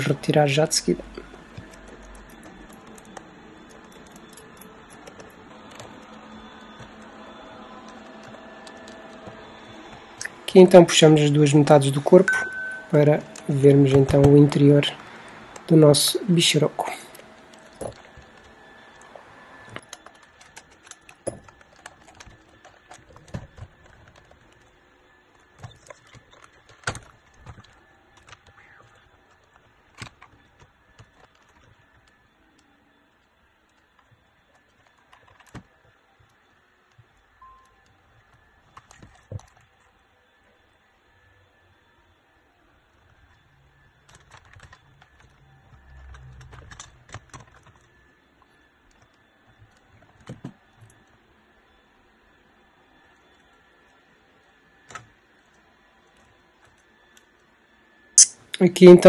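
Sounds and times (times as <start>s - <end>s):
faint steady hum: 0.0s - 59.0s.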